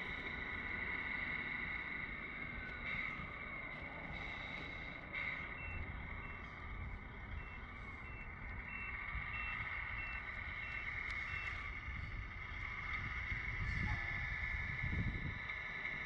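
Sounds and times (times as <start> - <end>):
steady high hum: 0.0 - 16.0
reverse warning beeper: 2.6 - 12.1.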